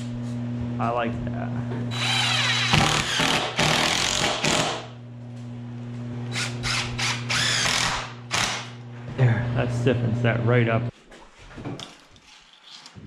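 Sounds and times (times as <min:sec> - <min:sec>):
impact driver driving screws: 0:02.0 - 0:04.8, 0:06.3 - 0:08.7.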